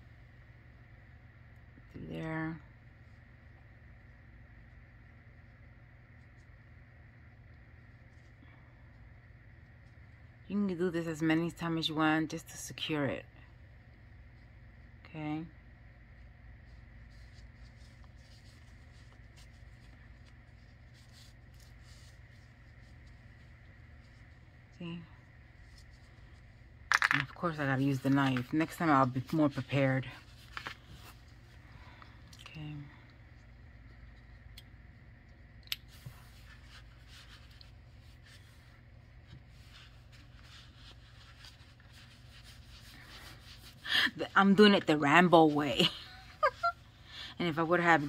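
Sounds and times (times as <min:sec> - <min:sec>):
steady low hum: 0:00.0 - 0:48.0
yarn rustling and scratching: 0:16.6 - 0:32.1, 0:35.9 - 0:46.8.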